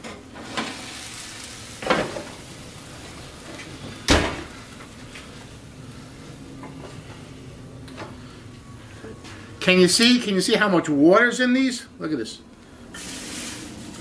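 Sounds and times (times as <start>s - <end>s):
hot pan sizzling: 0.0s - 6.6s, 12.9s - 14.0s.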